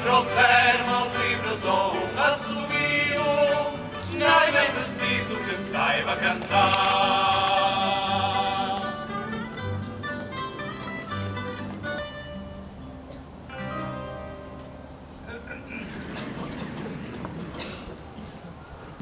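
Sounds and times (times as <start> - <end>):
group singing in chorus: 0.0 - 9.4
plucked guitars: 0.0 - 17.8.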